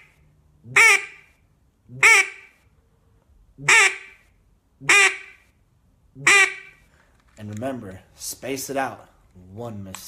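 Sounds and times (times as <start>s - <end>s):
duck call quacks: 0.7s - 2.6s, 3.6s - 5.5s, 6.2s - 6.9s.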